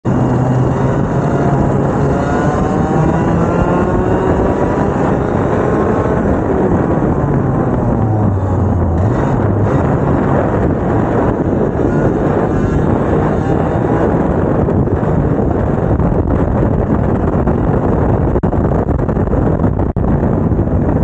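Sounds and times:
racing kart engines: 0.1 - 16.0.

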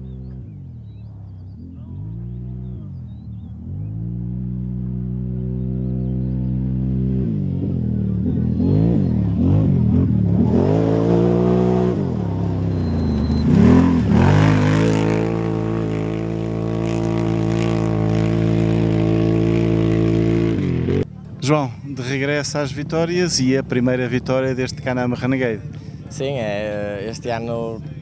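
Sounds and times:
quad engine revving: 1.5 - 21.1.

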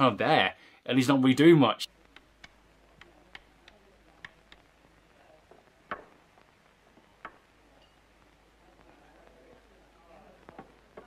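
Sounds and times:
faint steady hiss: 0.0 - 11.0
sharp clicks: 2.1 - 4.7.

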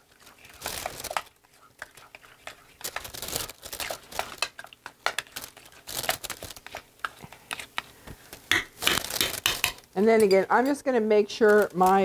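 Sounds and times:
spatula scraping bowl: 0.0 - 7.9
plastic bag and gloves crinkling: 0.0 - 9.8, 11.4 - 12.0.

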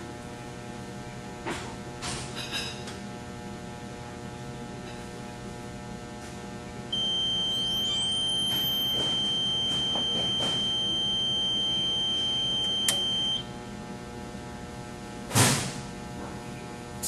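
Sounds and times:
high-pitched electronic buzzer: 7.0 - 13.5.

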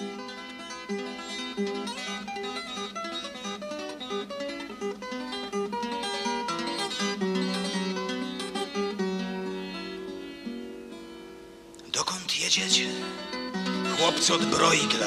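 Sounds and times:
plucked acoustic guitar melody: 0.0 - 15.0.

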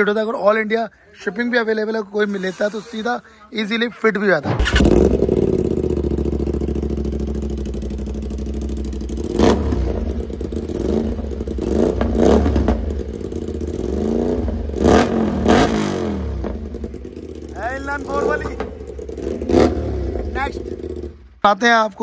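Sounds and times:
motorcycle engine idling and revving: 4.4 - 22.0.

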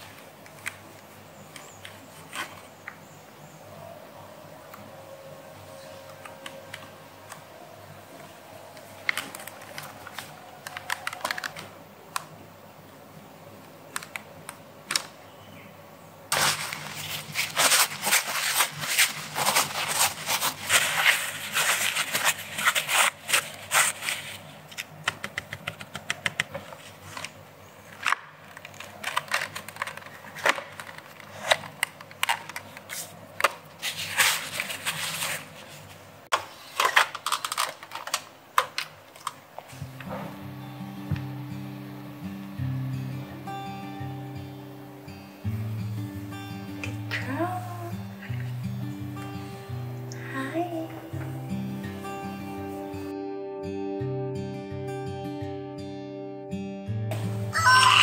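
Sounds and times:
cloth rubbing on plastic: 16.3 - 24.8, 33.8 - 36.1.

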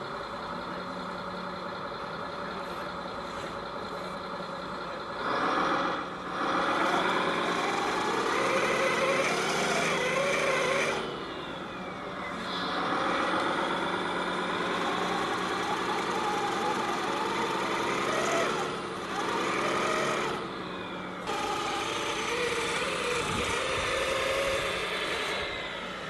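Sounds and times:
toy truck motor whining: 5.2 - 26.0.

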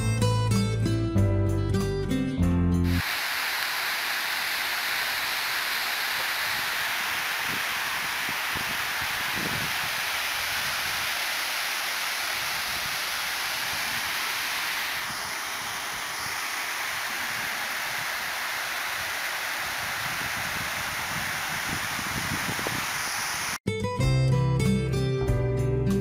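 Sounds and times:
water pouring over spillway: 2.9 - 23.6.

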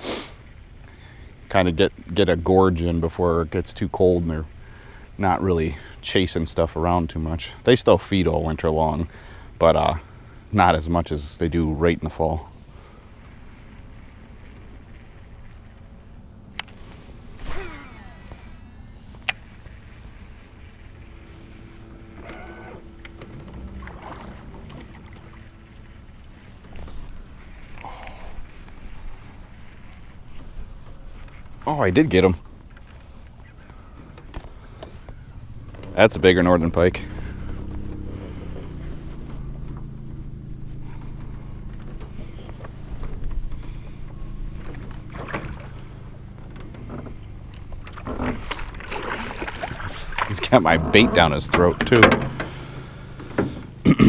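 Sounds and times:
steady low hum: 0.4 - 54.0
fishing reel whirring: 17.4 - 19.4, 21.5 - 23.2
boat handling clicks and knocks: 21.7 - 27.9, 28.6 - 36.5, 37.5 - 53.8.

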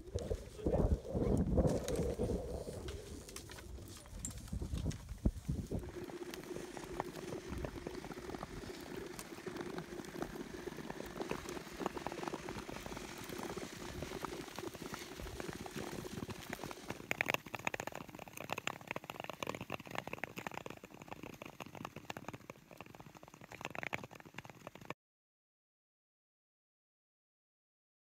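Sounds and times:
skate blades scraping ice: 4.7 - 17.9.

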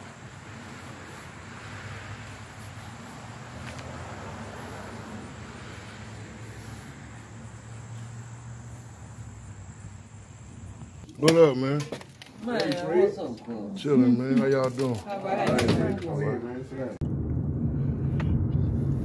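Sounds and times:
crickets chirring: 0.0 - 15.2.

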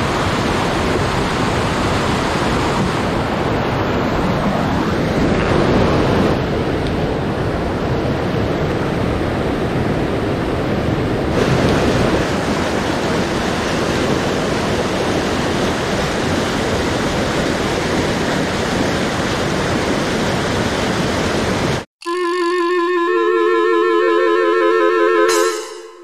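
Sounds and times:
stream rushing over boulders: 0.0 - 3.7, 11.3 - 21.8.

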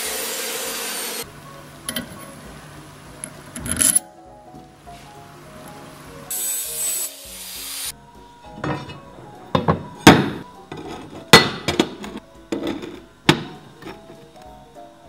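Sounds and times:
brief hiss: 6.3 - 7.9.

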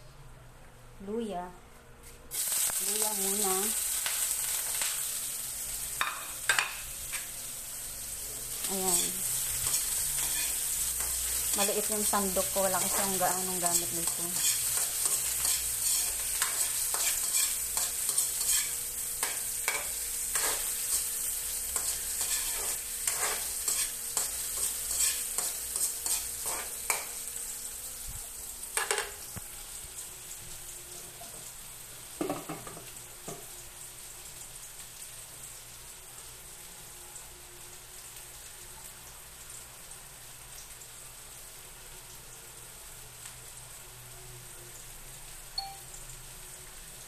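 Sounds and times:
ginger sizzling in hot oil: 2.3 - 47.0
metal ladle scraping a pan: 13.7 - 18.8.

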